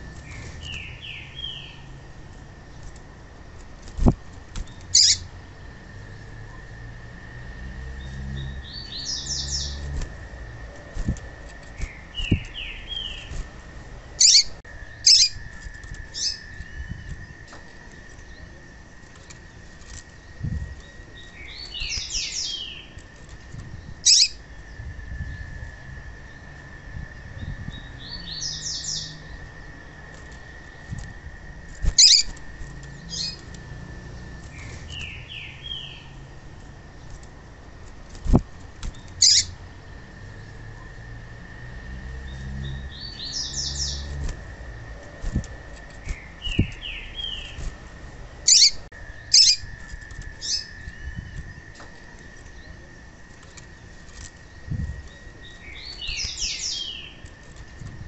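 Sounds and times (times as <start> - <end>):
bird chirping: 0.0 - 2.0, 4.6 - 6.6, 7.9 - 10.0, 10.6 - 13.4, 14.1 - 25.5, 27.3 - 29.8, 31.8 - 36.2, 38.9 - 40.0, 42.2 - 44.3, 45.0 - 47.8, 48.4 - 57.7
faint high whine: 0.0 - 58.0.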